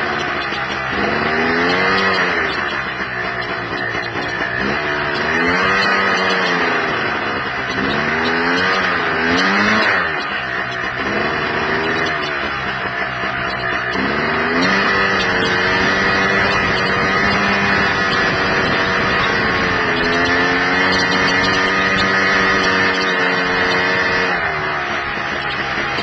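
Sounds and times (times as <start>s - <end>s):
buggy engine running: 0.0s - 26.0s
wind noise over microphone: 14.0s - 24.2s.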